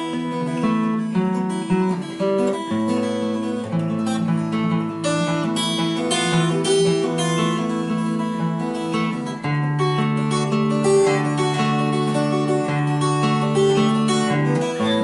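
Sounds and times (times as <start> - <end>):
acoustic guitar strumming: 0.0 - 15.0.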